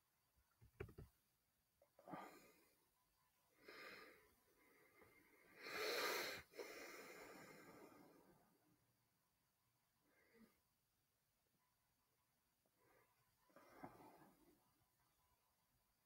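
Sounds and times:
noisy breathing close up: 2.0s - 8.8s, 10.0s - 10.9s, 12.7s - 14.8s.

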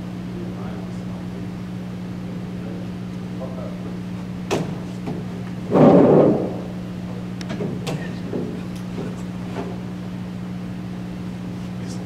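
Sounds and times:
steady low hum: 0.0s - 12.0s
chair scraping across floor: 5.7s - 6.6s.

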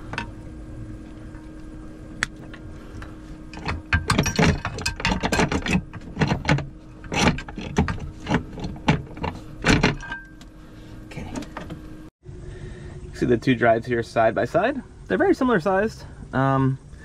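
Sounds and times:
steady low hum: 0.0s - 17.0s
metal clanking and rattling: 2.4s - 10.4s.

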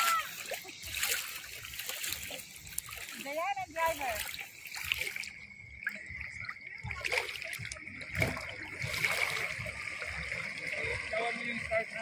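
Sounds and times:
water splashing from wading: 0.0s - 12.0s.

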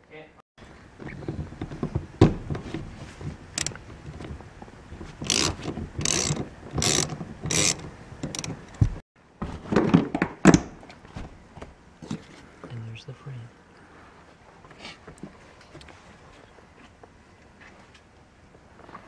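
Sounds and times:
tool handling noise: 0.8s - 12.4s
socket ratchet clicking: 5.3s - 8.8s.

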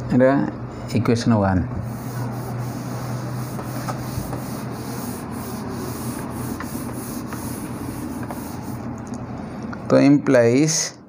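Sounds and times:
cloth wiping a whiteboard: 1.8s - 9.0s.

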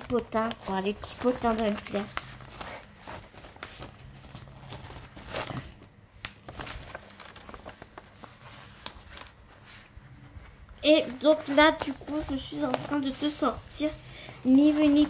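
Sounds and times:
packaging clicks and rustles: 0.0s - 9.5s.

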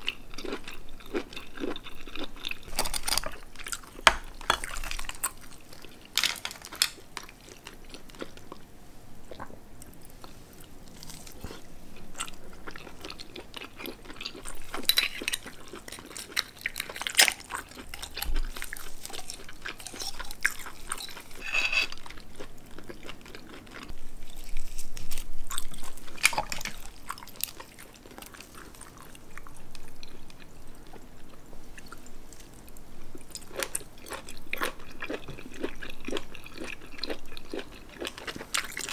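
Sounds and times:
wet chewing and biting: 0.0s - 8.6s, 9.3s - 31.0s.

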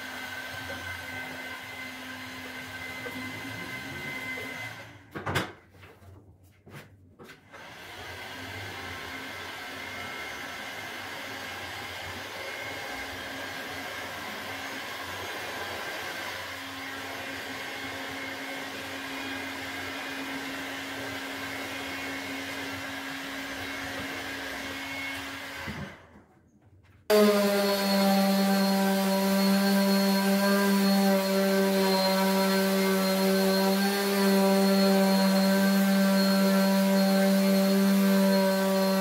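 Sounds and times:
orbital sander on wood: 0.0s - 5.0s, 7.6s - 26.0s, 27.1s - 39.0s
heat gun blowing: 27.1s - 39.0s.

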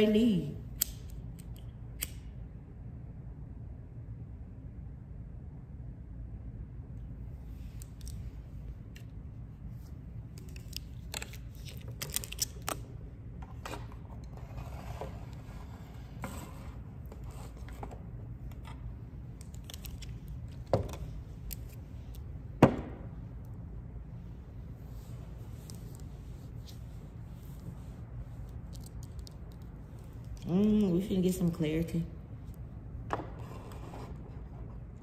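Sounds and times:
low hum: 0.0s - 35.0s
cards being shuffled: 9.8s - 14.5s, 16.1s - 22.3s.

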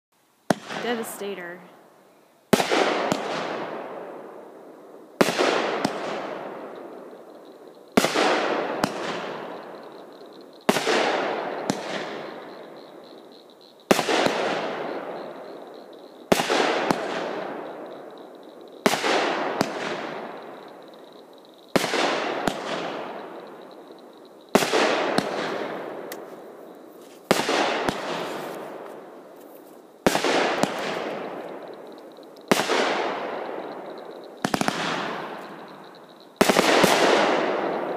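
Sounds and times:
firework shells booming: 0.5s - 1.2s, 2.5s - 29.4s, 30.0s - 37.9s.

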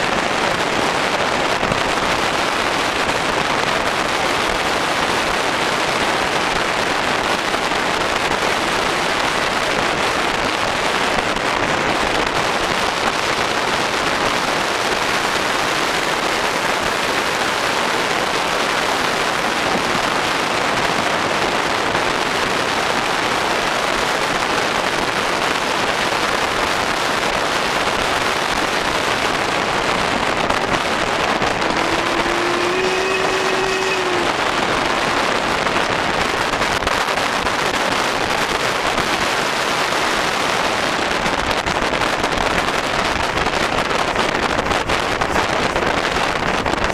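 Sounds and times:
wind noise on microphone: 0.0s - 46.9s
steam locomotive rushing: 30.8s - 35.2s.

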